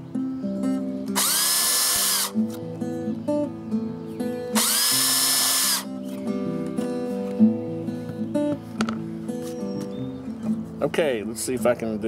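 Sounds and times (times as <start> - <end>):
guitar music: 0.0 - 12.0
cordless drill whining: 1.2 - 2.4, 4.6 - 5.9.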